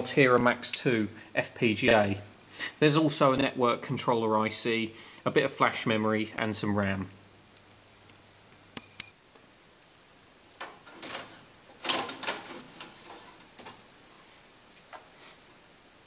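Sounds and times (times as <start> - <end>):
metal board clunking and scraping: 10.6 - 13.8.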